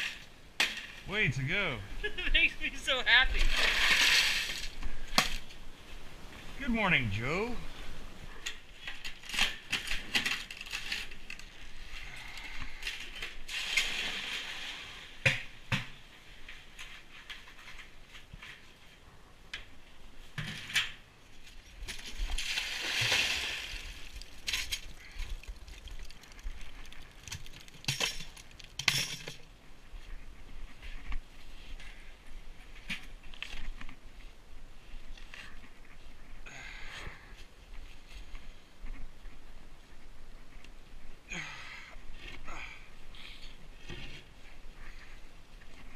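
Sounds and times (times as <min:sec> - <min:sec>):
crunching and rustling: 0:08.8 - 0:15.0, 0:21.3 - 0:29.4
buckets clinking and knocking: 0:22.8 - 0:29.4.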